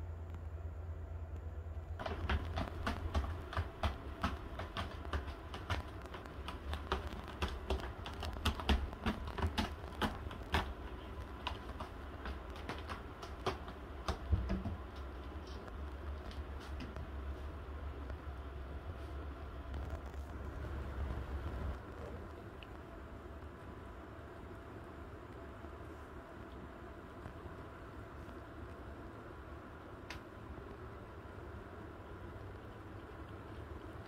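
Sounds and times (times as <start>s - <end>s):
cat claws scratching rope: 2.0s - 16.9s.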